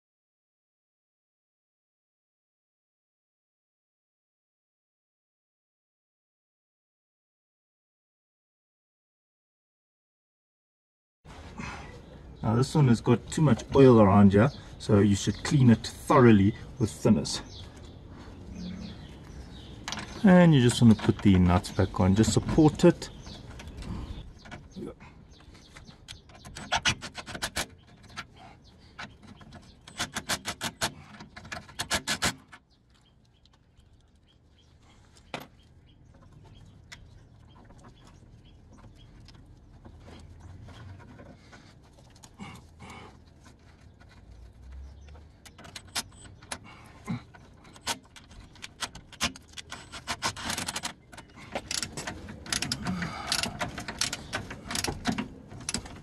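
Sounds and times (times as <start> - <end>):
metal handling noise: 45.2 - 56.0
hand ratchet clicking: 51.6 - 55.9.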